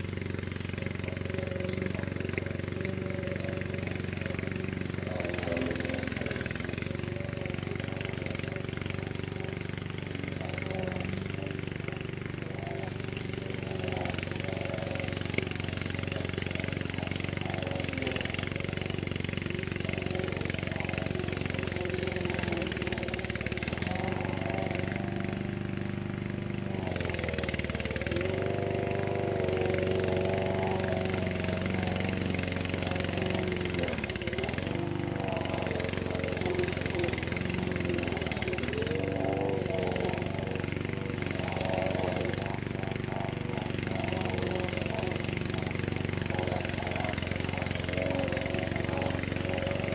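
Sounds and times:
mower petrol engine running: 0.0s - 49.9s.

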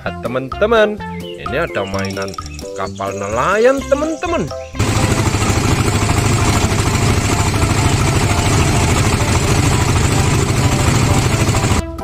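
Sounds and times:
diesel engine throbbing: 4.8s - 11.8s.

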